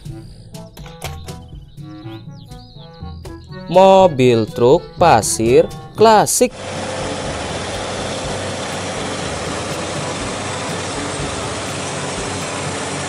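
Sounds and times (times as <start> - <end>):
truck diesel engine running: 6.5 - 13.0.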